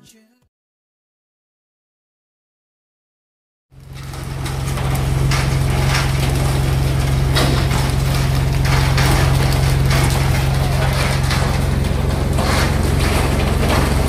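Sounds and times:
boat engine droning: 3.8 - 14.0
knocks and clatter on deck: 3.9 - 14.0.

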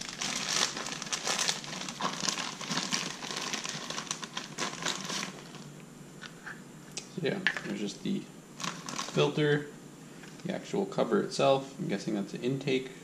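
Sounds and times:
plastic bag crinkling: 0.0 - 5.7, 8.6 - 9.4.

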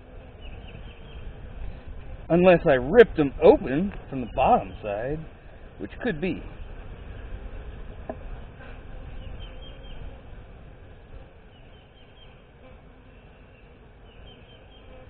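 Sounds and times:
bees humming: 0.0 - 15.0.

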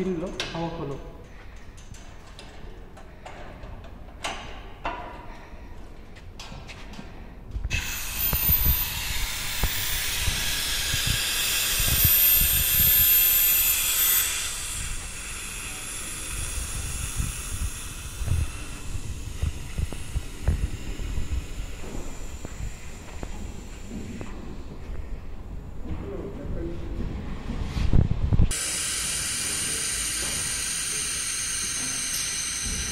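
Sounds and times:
air hissing through valve: 7.7 - 25.4, 28.5 - 32.9.

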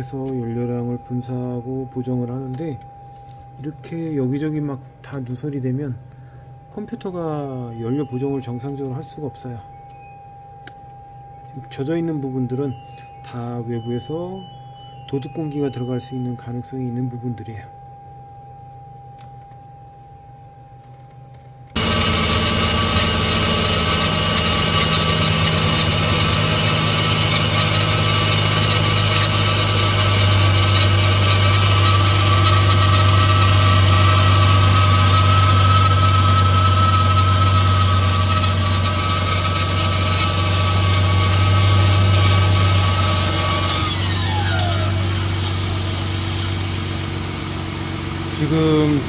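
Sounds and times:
air pump whining: 21.7 - 49.0
car engine idling: 21.8 - 36.6, 43.9 - 49.0.

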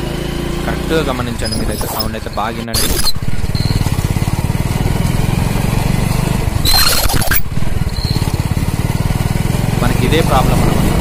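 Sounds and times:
small motorcycle engine running: 0.0 - 11.0
drum brake squeal: 1.3 - 4.0, 6.6 - 8.4.

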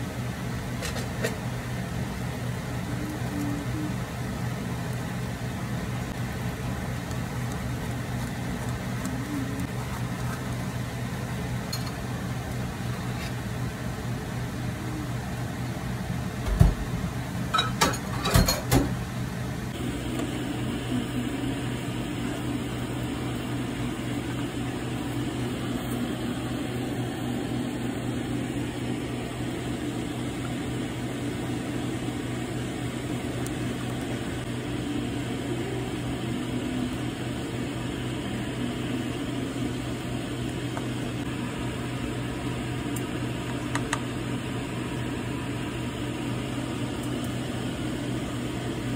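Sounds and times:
kitchen appliance humming: 0.0 - 48.9.

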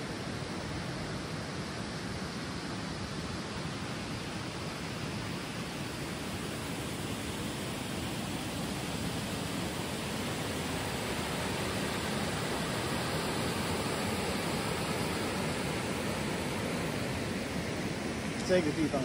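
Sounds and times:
river water rushing over stones: 0.0 - 19.0.

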